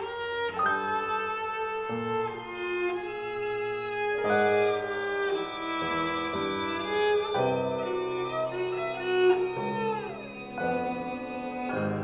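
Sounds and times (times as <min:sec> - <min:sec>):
cello bowed notes: 0:00.0 - 0:12.0
violin bowed notes: 0:00.0 - 0:12.0.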